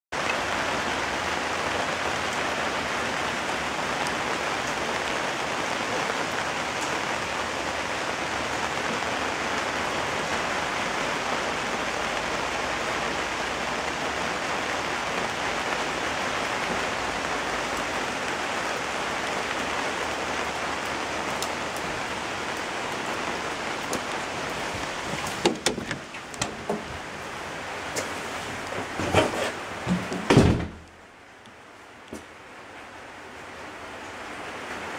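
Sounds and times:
rain pattering on umbrella: 0.2 - 34.9
sharp knocks and clatters: 25.2 - 27.0.

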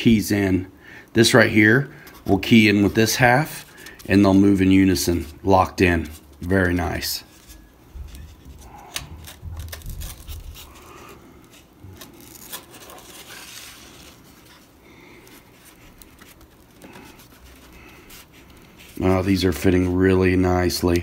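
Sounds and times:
foam parts rubbing and scraping: 2.1 - 21.0.

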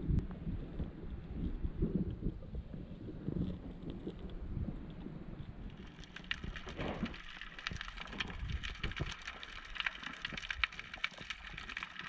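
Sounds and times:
underwater crackling and clicking: 0.0 - 12.0.

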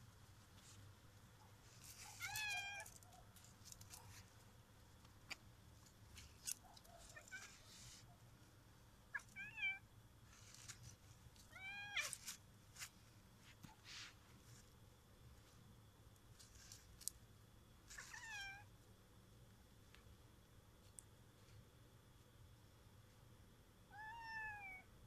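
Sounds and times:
cat yowling meows: 2.0 - 2.9, 9.2 - 9.8, 11.5 - 12.2, 18.0 - 18.7, 23.9 - 24.9.

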